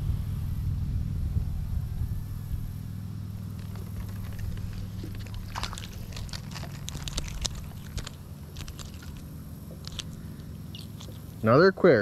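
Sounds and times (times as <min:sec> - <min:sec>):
steady low rumble: 0:00.0 - 0:12.0
fish splashing at water surface: 0:03.4 - 0:11.5.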